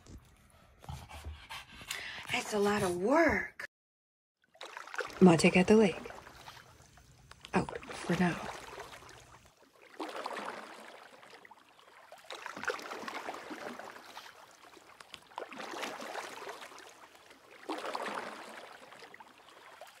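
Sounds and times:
small waves washing on shore: 4.5s - 20.0s.

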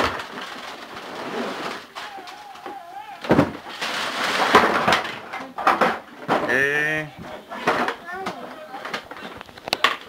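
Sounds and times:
toy boxes knocking and rattling: 0.0s - 10.0s
child's voice: 7.2s - 9.0s.

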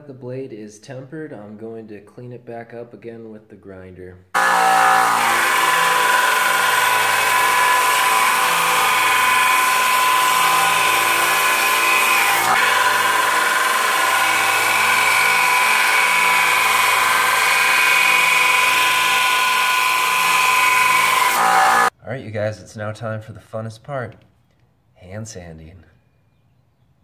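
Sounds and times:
belt grinder grinding steel blade: 4.4s - 21.9s.

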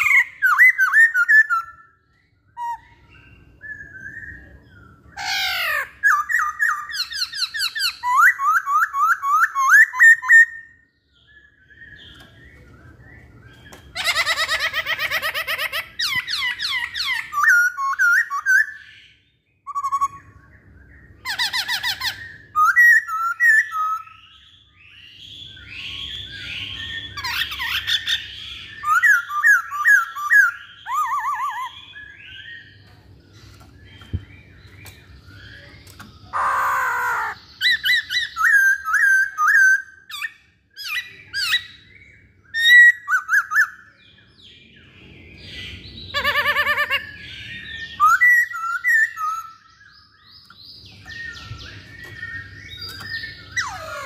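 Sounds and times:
bird singing whistled notes: 0.0s - 14.0s, 16.0s - 36.4s, 37.2s - 54.0s
bird squawking: 13.9s - 18.8s, 36.2s - 41.8s, 46.1s - 49.5s, 52.8s - 54.0s.

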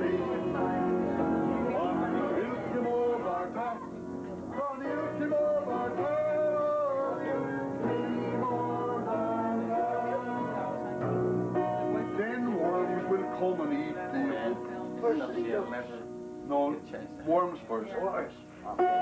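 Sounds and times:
voices singing long notes: 0.0s - 15.3s
upright piano: 0.0s - 19.0s.

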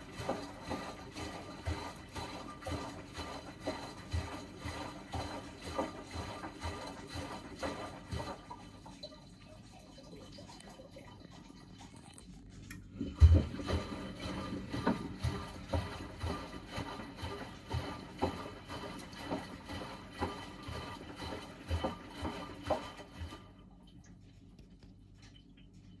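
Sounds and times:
washing machine drum turning: 0.0s - 8.8s, 13.0s - 23.6s
water sloshing and splashing: 0.0s - 26.0s.

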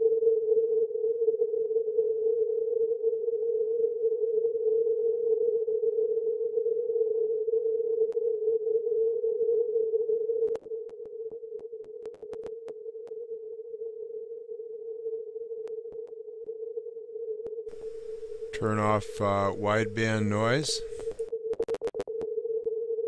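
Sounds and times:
narrow tone-like radio noise: 17.7s - 21.2s.

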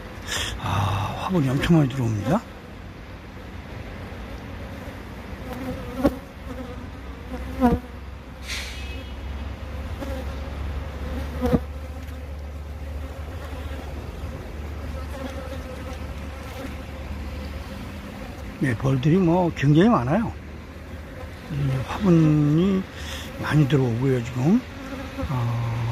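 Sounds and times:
bees buzzing: 4.2s - 25.9s
bee flying past: 4.7s - 18.6s, 20.8s - 25.9s.

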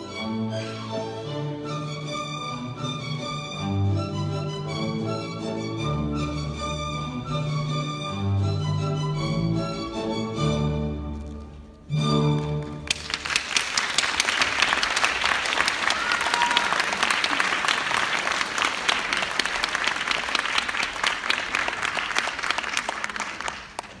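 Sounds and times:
audience applause: 12.4s - 24.0s.

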